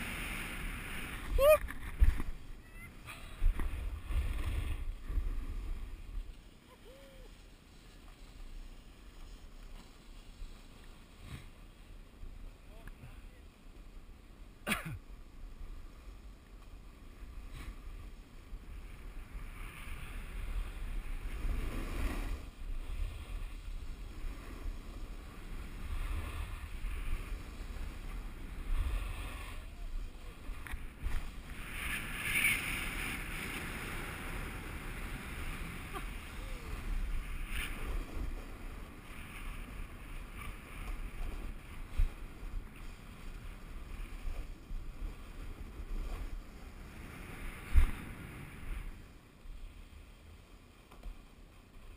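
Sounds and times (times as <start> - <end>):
wind buffeting microphone: 0.0 - 6.4
skis scraping over snow: 0.0 - 12.6, 15.4 - 51.9.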